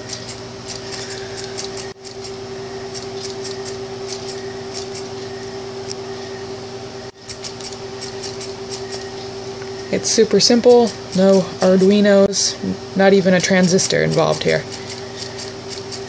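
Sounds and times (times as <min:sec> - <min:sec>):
steady motor hum: 0:00.0 - 0:16.0.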